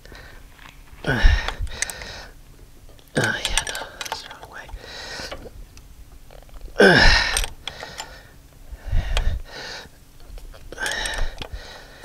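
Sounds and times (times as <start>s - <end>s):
heavy breaths: 0.0s - 2.4s, 3.2s - 5.7s, 6.7s - 10.0s, 10.7s - 12.0s
man grunting: 1.0s - 1.5s, 6.8s - 7.4s
light metallic clicks: 2.9s - 6.6s.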